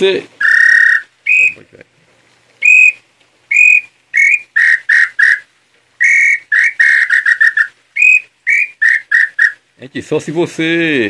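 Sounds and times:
bird call whistle: 0.4 - 1.6, 2.6 - 9.6.

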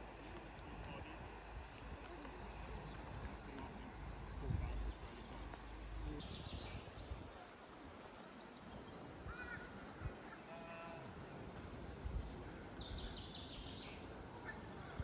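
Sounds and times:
wind rumbling on microphone: 0.0 - 8.1, 11.5 - 13.3.

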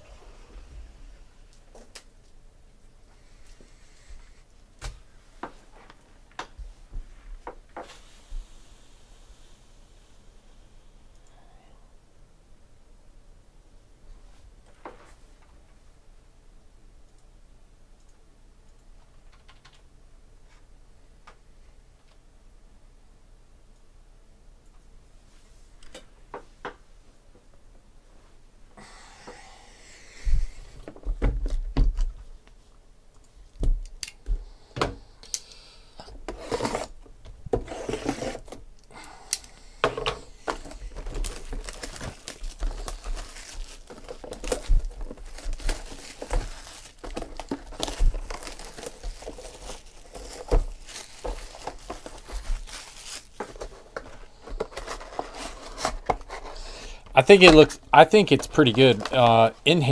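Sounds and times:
plastic wrapping crinkling and tearing: 40.5 - 56.6, 58.3 - 59.6.

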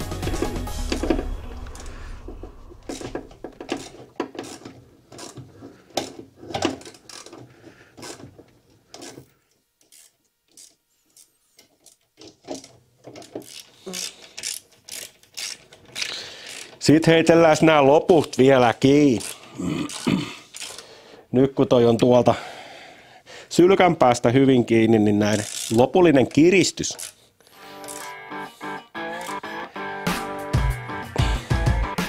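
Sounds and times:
wrench clicking and knocking: 2.9 - 7.4, 9.0 - 16.8, 25.4 - 25.8.

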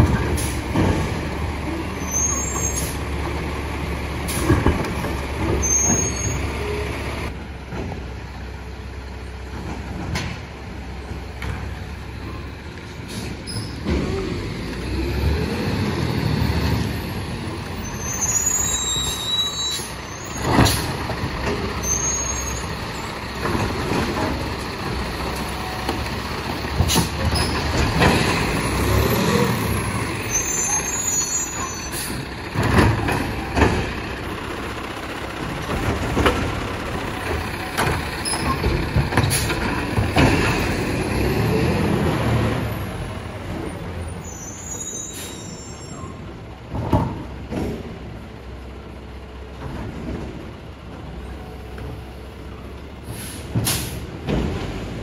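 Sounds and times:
garbage truck engine revving: 13.8 - 19.2, 20.3 - 44.0.

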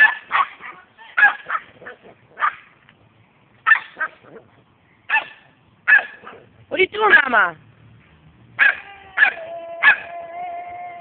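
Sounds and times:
small dog barking: 0.0 - 2.7, 3.6 - 4.4, 5.1 - 6.5, 8.6 - 10.2.

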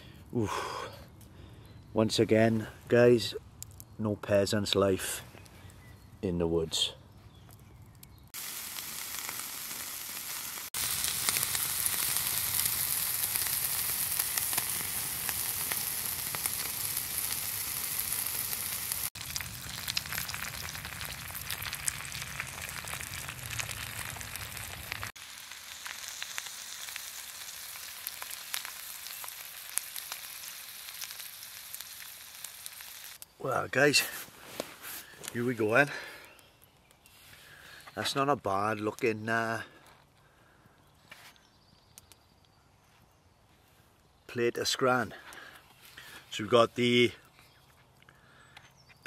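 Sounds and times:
wood fire crackling: 2.4 - 40.6
egg frying in a pan: 8.3 - 33.2
meat sizzling on a grill: 8.4 - 34.0.

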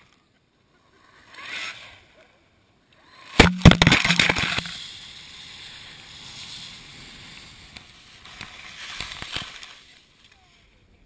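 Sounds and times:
camera tumbling in snow: 3.4 - 11.0
skis sliding over snow: 4.0 - 11.0.

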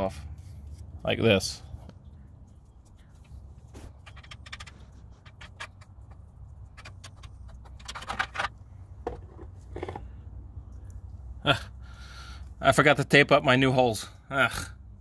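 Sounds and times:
paintbrush clicking and scraping: 1.8 - 7.9.

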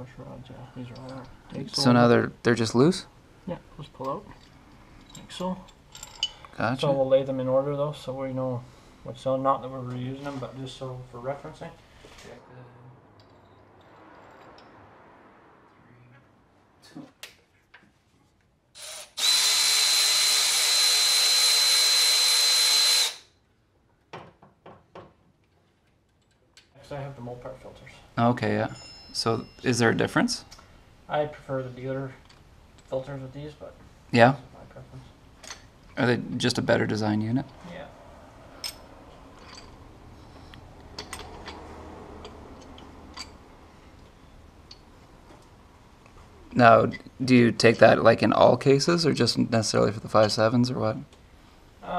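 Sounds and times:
power ratchet motor whine: 18.8 - 23.3.

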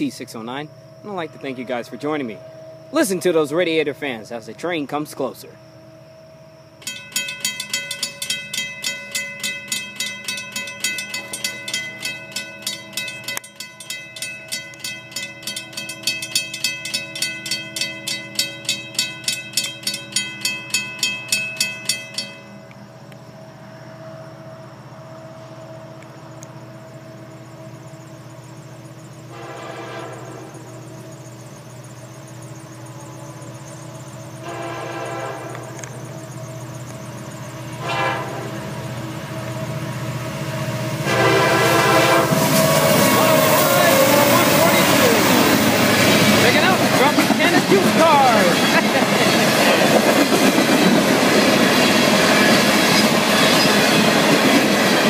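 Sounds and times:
crossing bell ringing: 0.0 - 4.5, 5.4 - 22.9, 28.2 - 55.0
locomotive hum: 0.0 - 55.0
train horn blasts: 29.3 - 30.6, 34.4 - 35.8, 37.7 - 39.9, 41.0 - 46.8.

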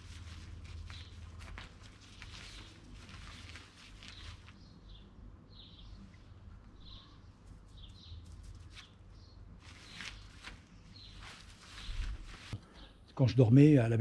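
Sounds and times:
faint bird chirps: 4.0 - 13.1.

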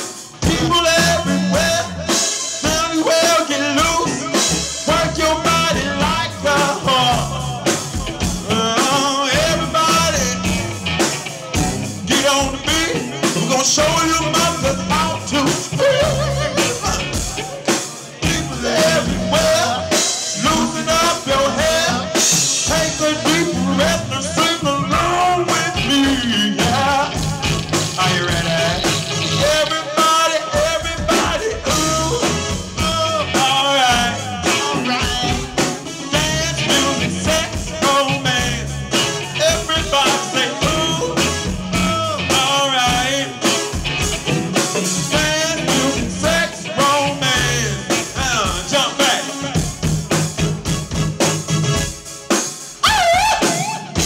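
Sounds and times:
electric bass: 0.0 - 29.9, 30.6 - 52.2
drum kit: 0.0 - 54.0
man singing into microphone: 0.4 - 10.8, 11.5 - 49.8, 52.8 - 54.0.

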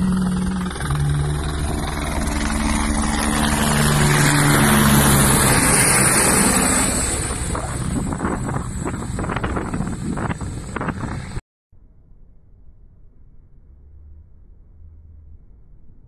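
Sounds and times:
helicopter flying overhead: 0.0 - 11.4
high turbine whine: 0.0 - 11.4.

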